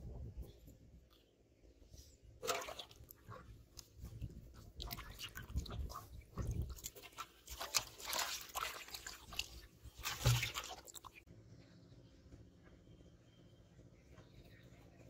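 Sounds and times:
fish splashing in a basin: 0:02.4 - 0:03.5, 0:04.8 - 0:11.2.

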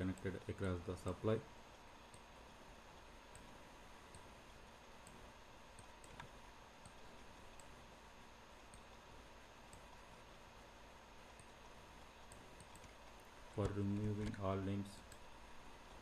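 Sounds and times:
faint hiss: 0:00.0 - 0:16.0
computer mouse click: 0:05.0 - 0:07.8, 0:12.2 - 0:13.0.

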